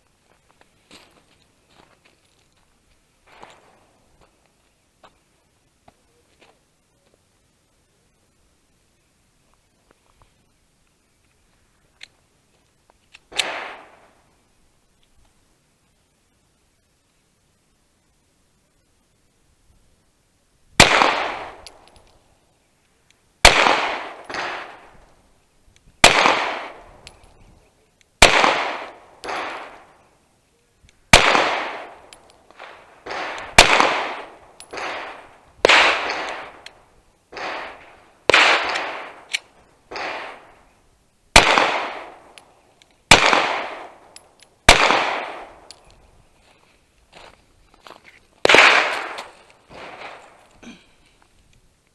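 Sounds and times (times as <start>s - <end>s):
gunshot echo: 13.3s - 14.1s, 20.8s - 21.8s, 23.4s - 24.9s, 26.0s - 27.0s, 28.2s - 29.9s, 31.1s - 36.7s, 37.3s - 39.3s, 39.9s - 40.5s, 41.4s - 42.4s, 43.1s - 45.7s, 48.4s - 50.4s
pistol shots: 13.3s - 14.1s, 20.8s - 22.0s, 23.4s - 24.9s, 26.0s - 27.2s, 28.2s - 30.0s, 31.1s - 40.6s, 41.3s - 42.4s, 43.1s - 45.8s, 48.4s - 50.3s.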